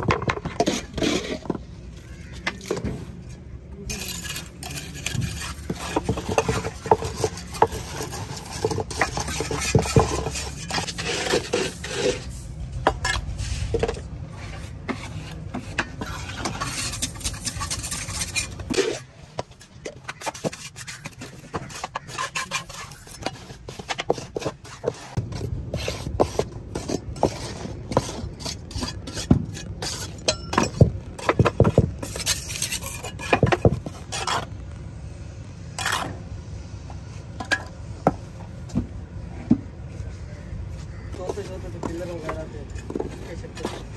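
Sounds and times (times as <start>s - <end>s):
trowel scraping a steel mold: 0.0s - 1.7s, 3.9s - 19.1s, 19.9s - 34.6s, 41.1s - 43.9s
low background rumble: 22.7s - 43.9s.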